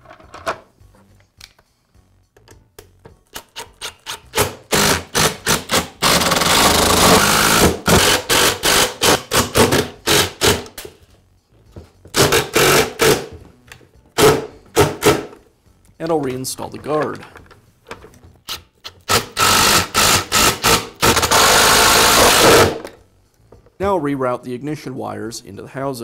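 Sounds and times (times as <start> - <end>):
impact driver hammering: 4.3 - 10.8, 12.1 - 13.4, 14.2 - 15.4, 19.0 - 23.0.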